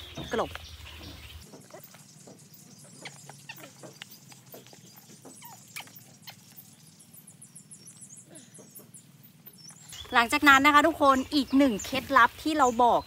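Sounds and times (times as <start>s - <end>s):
hands rustling potting mix: 9.8s - 13.0s.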